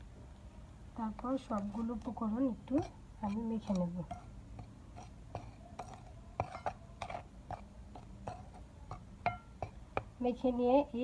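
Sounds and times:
spoon scraping flour in bowl: 0:01.1 - 0:09.5.

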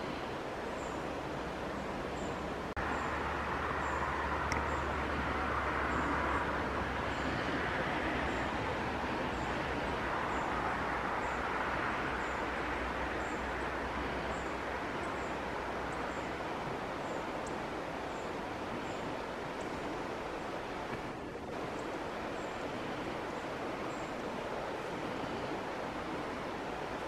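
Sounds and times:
hiss-like outdoor wash: 0:00.0 - 0:27.0
faint high tick: 0:04.5 - 0:04.7.

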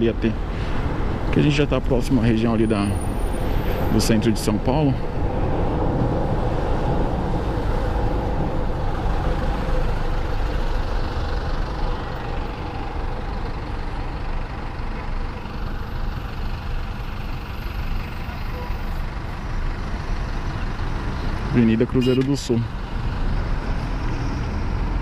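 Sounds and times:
surrounding traffic: 0:00.0 - 0:25.0
wind rush on microphone: 0:05.0 - 0:09.6.

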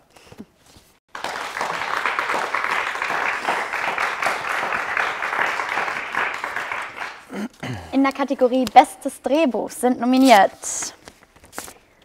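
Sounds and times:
applause: 0:01.1 - 0:07.4.

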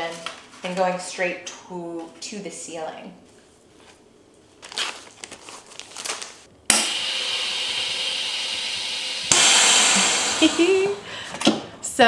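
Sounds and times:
plastic bag crinkling: 0:03.7 - 0:06.5
vacuum pump whirring: 0:06.7 - 0:12.0.

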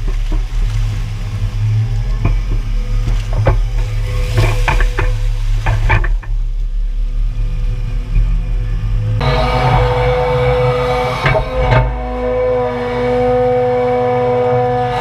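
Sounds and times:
excavator engine running: 0:00.0 - 0:15.0.

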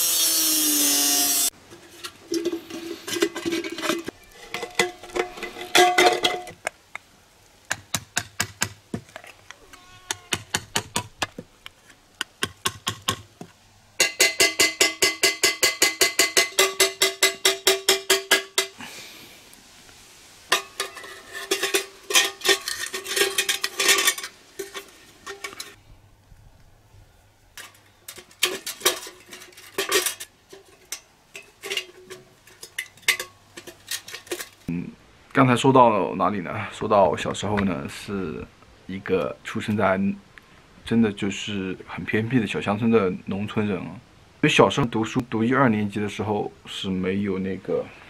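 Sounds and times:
metal tool striking tin can: 0:14.0 - 0:18.8.

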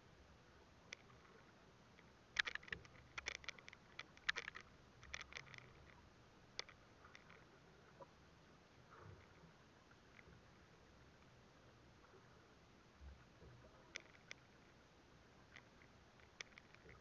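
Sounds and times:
faint background noise: 0:00.0 - 0:17.0
fishing line clicks and taps: 0:00.9 - 0:01.1, 0:02.0 - 0:06.0, 0:06.6 - 0:08.1, 0:13.4 - 0:14.6, 0:15.5 - 0:17.0.

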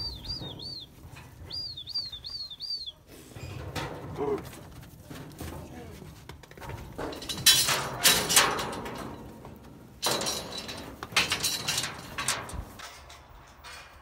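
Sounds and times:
metal chute panels clanging: 0:07.0 - 0:14.0.

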